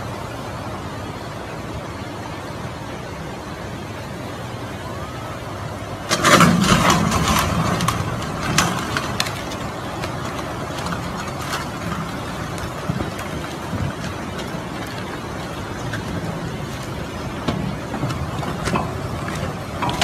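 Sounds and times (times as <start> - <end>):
floodwater rushing: 0.0 - 20.0
bridge cracking and crashing: 6.0 - 20.0.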